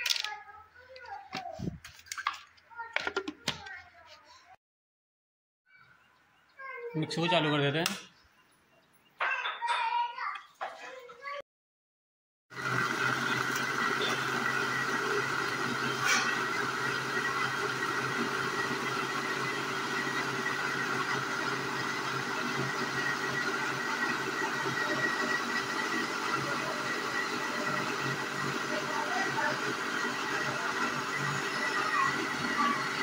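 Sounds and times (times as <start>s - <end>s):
mixer grinder motor running: 12.5s - 33.0s.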